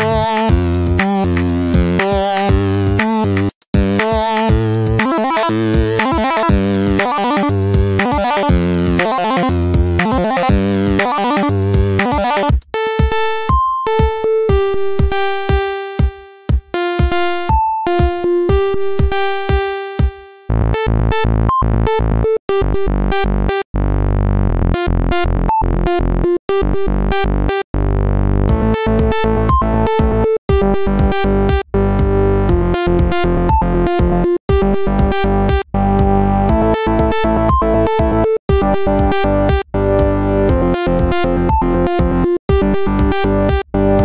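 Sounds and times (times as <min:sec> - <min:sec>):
low synth bass: 0:00.0 - 0:12.4, 0:20.5 - 0:44.0
synthesizer melody: 0:00.0 - 0:23.6, 0:35.9 - 0:44.0.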